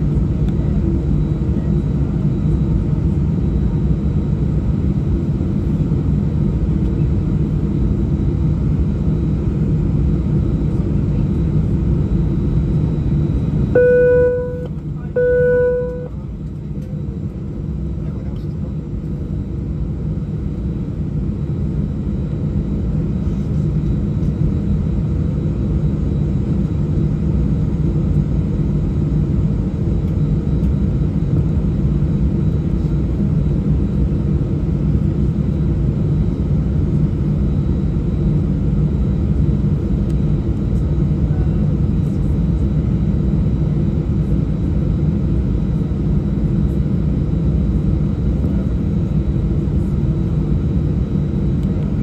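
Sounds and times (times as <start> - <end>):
jet engines rumbling in cabin: 0.0 - 52.0.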